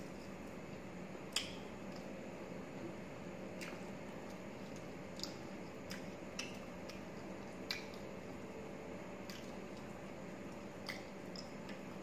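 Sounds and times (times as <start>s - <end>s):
faint hum: 0.0s - 12.0s
chewing: 3.6s - 8.1s.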